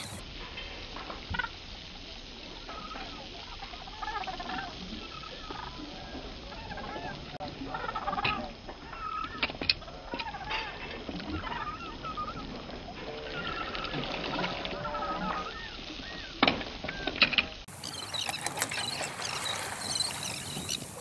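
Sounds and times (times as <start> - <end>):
seabirds calling: 0.0 - 0.2, 17.7 - 21.0
water: 0.0 - 21.0
wind: 0.0 - 21.0.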